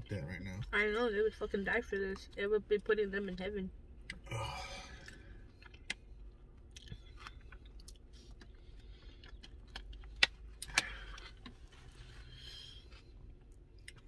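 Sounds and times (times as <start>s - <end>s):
chewing crispy taco: 4.0s - 14.0s.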